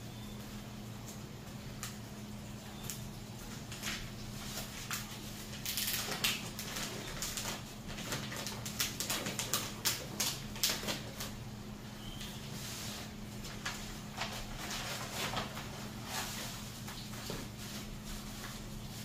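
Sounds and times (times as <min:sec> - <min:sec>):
contact paper crinkling and crackling: 0:02.8 - 0:11.4, 0:12.2 - 0:19.0.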